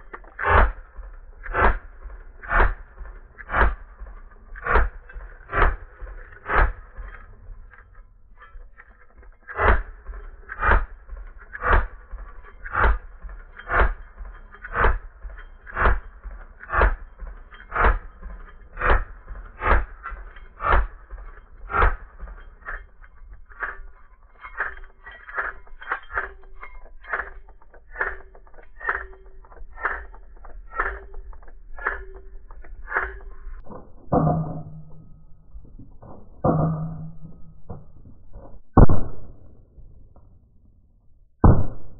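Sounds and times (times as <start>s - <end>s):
steady ringing tone: 0.0s - 38.0s.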